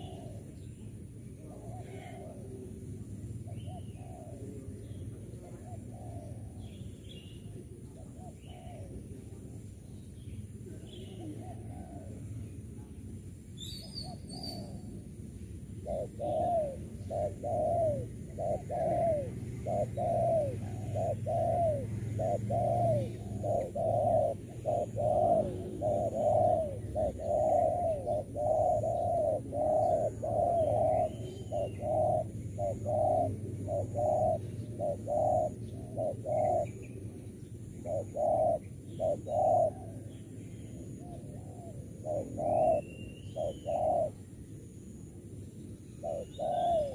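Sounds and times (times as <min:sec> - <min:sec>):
doves cooing: 0:00.0 - 0:09.8, 0:10.5 - 0:13.2, 0:13.8 - 0:45.2, 0:46.0 - 0:46.9
faint high bird chirps: 0:13.6 - 0:14.9, 0:15.9 - 0:44.2, 0:45.4 - 0:46.9.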